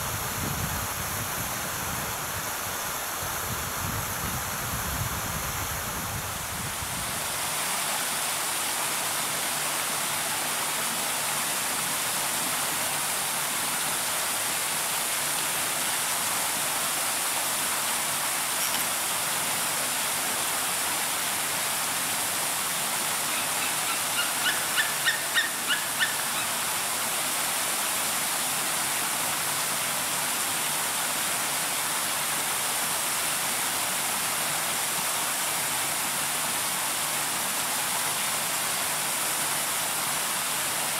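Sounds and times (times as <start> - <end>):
running water hissing: 0.0 - 40.9
bird calling high notes: 23.3 - 26.5.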